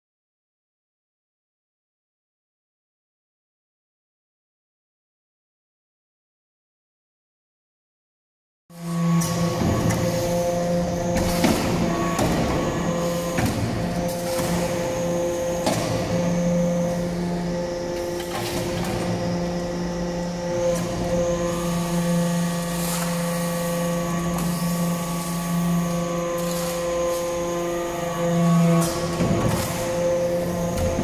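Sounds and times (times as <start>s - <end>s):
hydraulic power unit humming: 8.8s - 31.0s.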